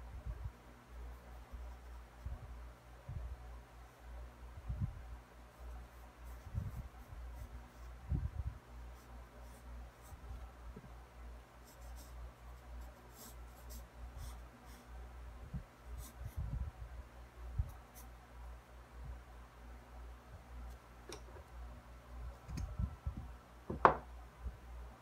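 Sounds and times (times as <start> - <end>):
pencil scratching on paper: 11.6 - 14.9.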